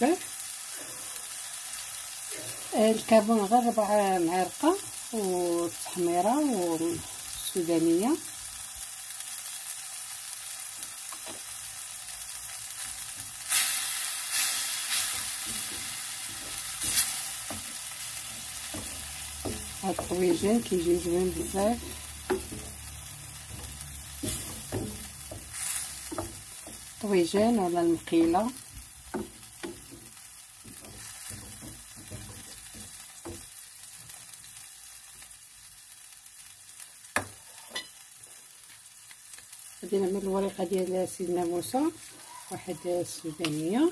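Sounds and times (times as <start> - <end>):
sauce sizzling in a pan: 0.0 - 43.9
wooden spatula scraping: 14.4 - 33.4.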